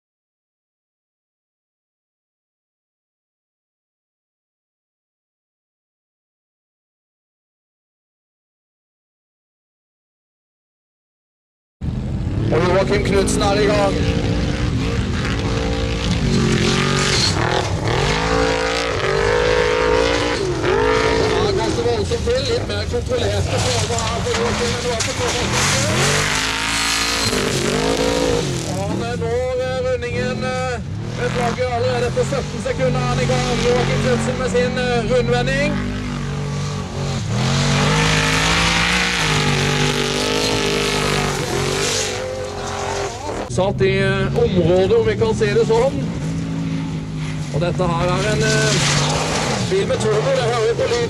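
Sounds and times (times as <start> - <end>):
race car engine revving: 11.9 - 51.0.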